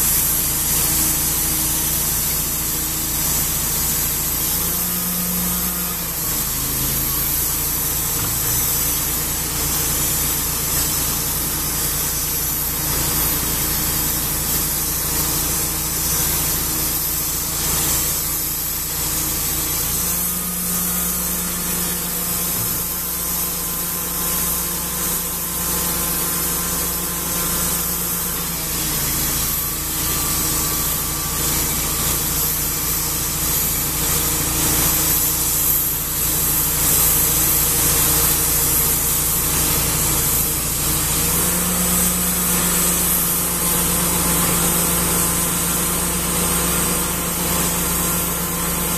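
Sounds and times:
sawmill engine running: 0:00.0 - 0:48.9.

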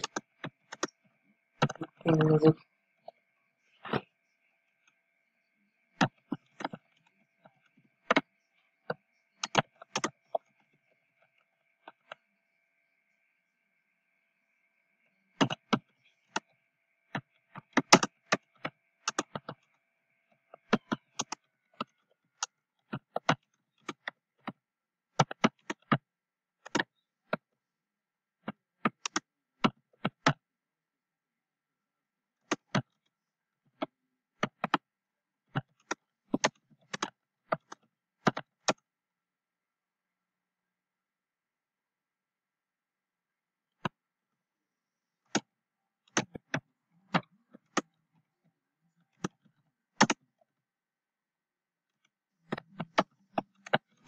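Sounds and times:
keyboard typing clicks: 0:00.0 - 0:01.0, 0:08.9 - 0:10.5, 0:15.4 - 0:16.5, 0:17.1 - 0:19.7, 0:20.5 - 0:24.6, 0:25.2 - 0:27.5, 0:28.4 - 0:30.4, 0:35.5 - 0:38.8, 0:50.0 - 0:50.3.

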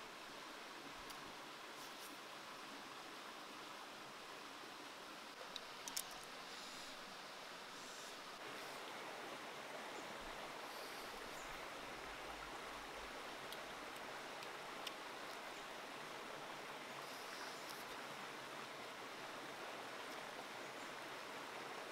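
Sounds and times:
flowing water rushing: 0:00.0 - 0:21.9
faint clicks: 0:05.4 - 0:06.4, 0:13.5 - 0:15.4.

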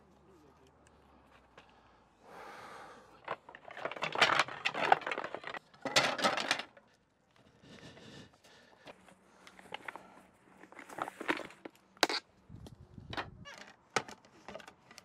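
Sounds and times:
metallic objects clattering: 0:03.2 - 0:06.8.

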